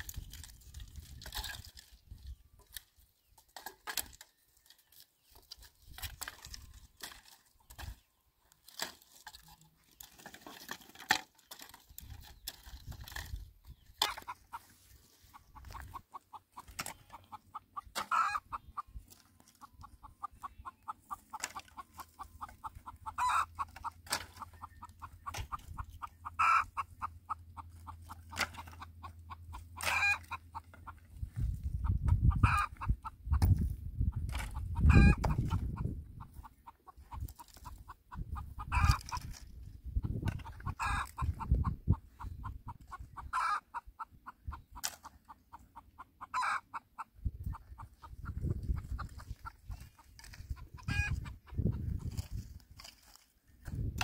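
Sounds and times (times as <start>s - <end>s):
dry branches knocking and snapping: 0.0s - 14.4s, 21.3s - 22.6s, 23.6s - 26.0s, 28.0s - 28.8s, 44.8s - 45.1s, 52.0s - 54.0s
chicken clucking: 11.4s - 54.0s.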